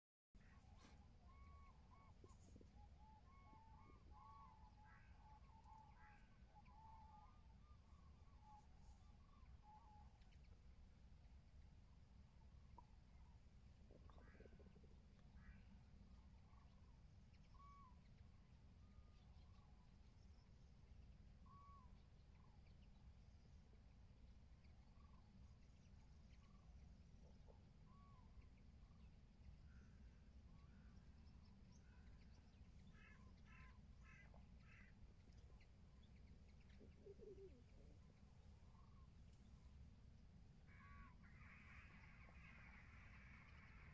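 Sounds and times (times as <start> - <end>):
distant cranes calling: 0.4 - 10.4, 29.7 - 35.6, 40.6 - 43.9.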